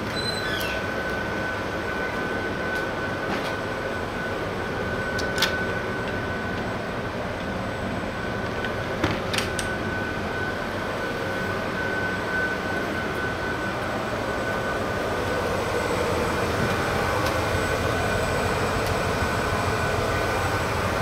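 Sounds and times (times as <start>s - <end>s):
constant high whine: 0.0s - 21.0s
ferry engines droning: 0.0s - 21.0s.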